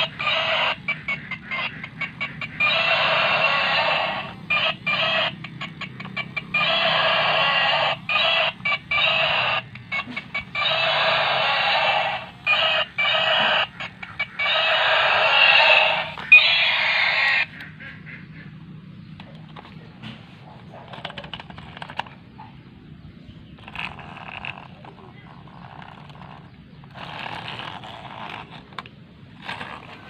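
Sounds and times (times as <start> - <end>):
toy electronic roar: 0.0 - 17.7, 20.6 - 22.2, 23.6 - 30.0
steady low hum: 0.0 - 30.0.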